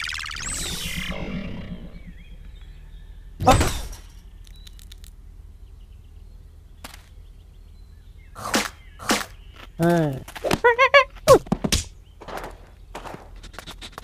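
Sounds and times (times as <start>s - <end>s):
flying saucer beaming tone: 0.0s - 3.4s.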